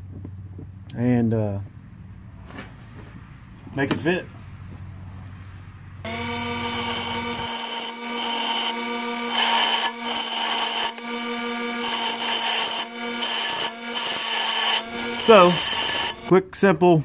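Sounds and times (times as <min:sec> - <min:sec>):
bench grinder humming: 0:06.1 - 0:16.3
metal grinding rasp: 0:06.1 - 0:16.3.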